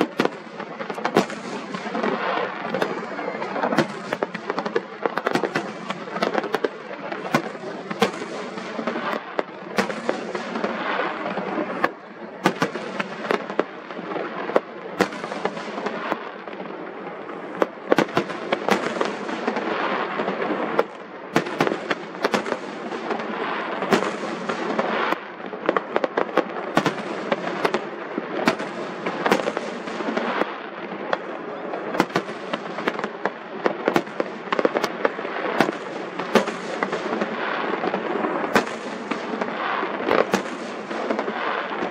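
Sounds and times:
fireworks crackling: 0.0 - 41.9
firework shells bursting: 3.6 - 10.8.

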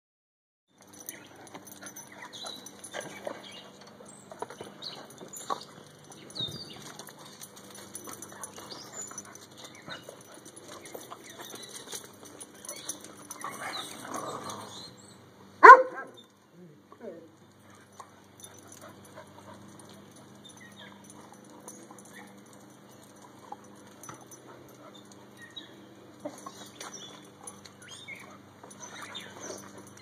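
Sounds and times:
dogs scuffling: 0.8 - 14.9
dog vocal sounds: 1.1 - 17.2.

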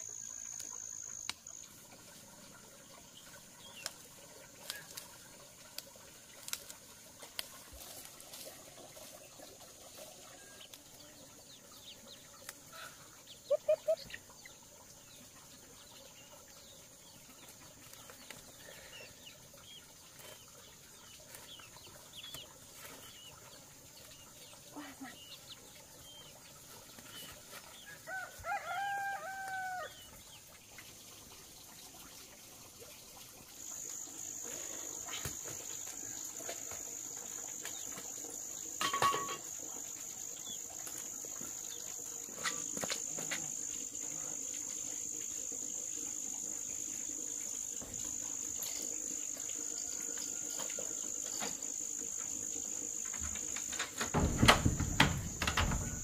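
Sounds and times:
chickens clucking: 0.0 - 16.6
rooster crowing: 28.0 - 30.0.

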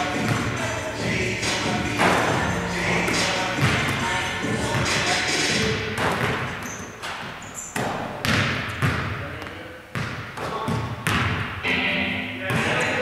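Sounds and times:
basketball bouncing on wooden floor: 3.6 - 4.0, 6.0 - 11.5.

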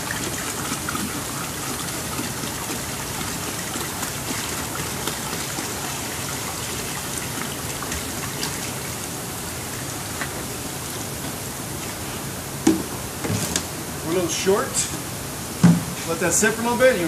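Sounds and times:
liquid pouring and splashing: 0.0 - 11.0.

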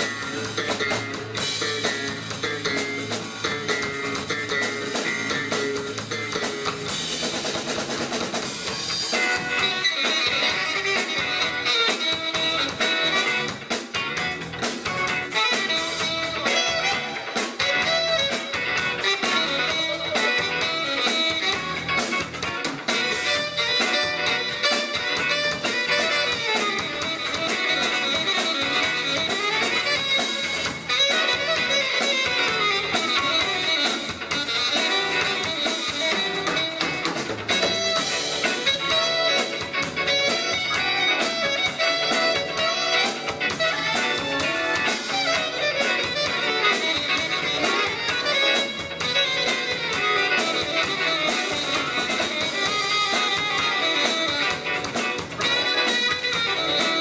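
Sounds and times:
saxophone: 0.0 - 7.3, 8.6 - 57.0
drum kit: 0.0 - 57.0
electric bass: 0.0 - 57.0
electric guitar: 0.0 - 57.0
keyboard: 0.0 - 57.0.

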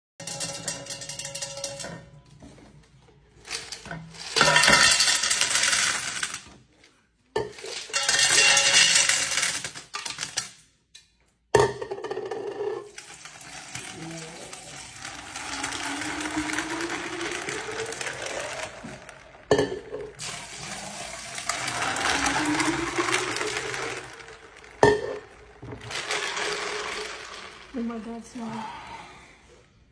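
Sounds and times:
ice cubes clattering into glass: 3.6 - 6.5, 7.5 - 10.5, 12.8 - 28.1
liquid pouring over ice: 12.9 - 27.8.

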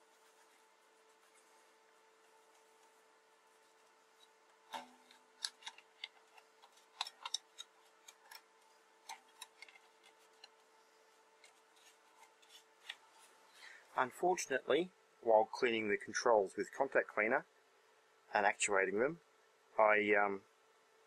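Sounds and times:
cotton swab scrubbing and tapping: 0.0 - 13.5.

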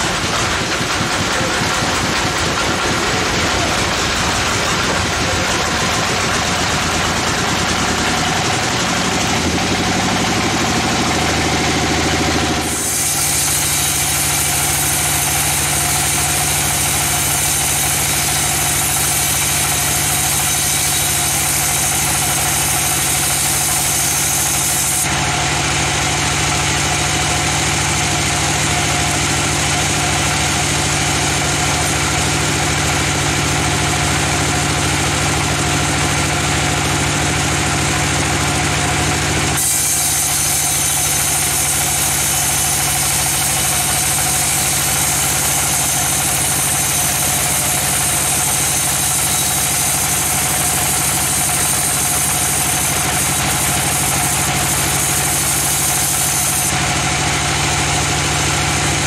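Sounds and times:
band sawmill machine hum: 0.0 - 59.0
high hiss of saw cutting log: 0.2 - 25.3, 39.5 - 56.9.

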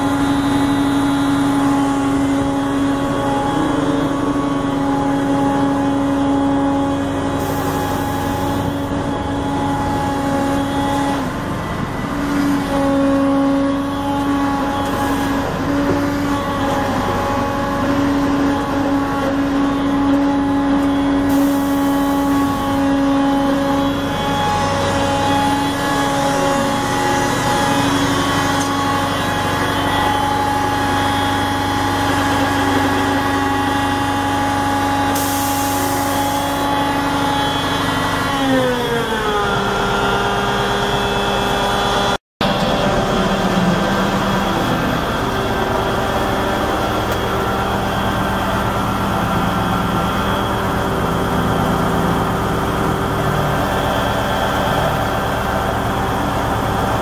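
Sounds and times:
diesel engine of construction machine: 0.0 - 57.0.

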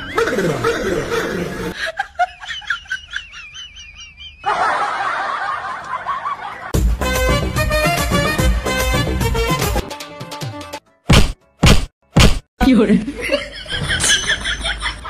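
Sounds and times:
high-pitched giggling laugh: 0.0 - 6.7, 13.1 - 15.0
lower laughing: 0.0 - 6.7.

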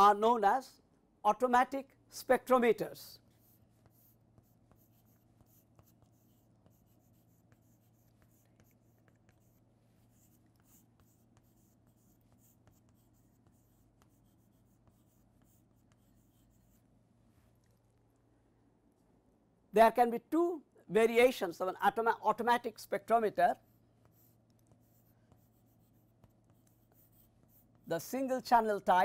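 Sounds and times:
chalk scratching on chalkboard: 3.1 - 16.9, 22.7 - 28.8.

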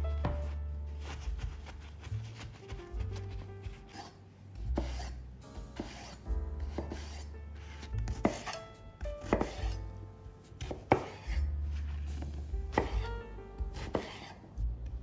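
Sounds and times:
knife chopping on wooden board: 0.2 - 7.2, 7.9 - 9.8, 10.6 - 11.4, 12.7 - 14.4.

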